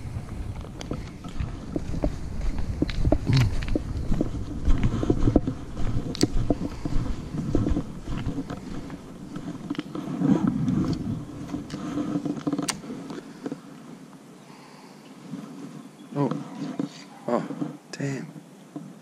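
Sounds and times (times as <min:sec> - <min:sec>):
footsteps: 0:00.0 - 0:14.1, 0:15.2 - 0:19.0
wind rumbling on microphone: 0:00.0 - 0:14.1
low steady hum: 0:00.0 - 0:14.3.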